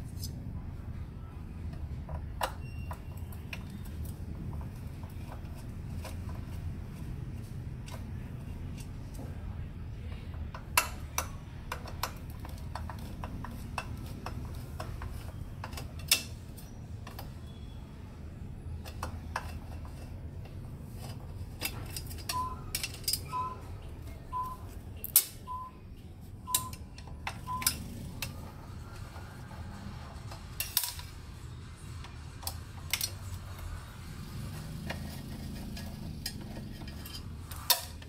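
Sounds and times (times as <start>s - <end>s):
screwdriver clinking on metal: 21.0s - 23.5s.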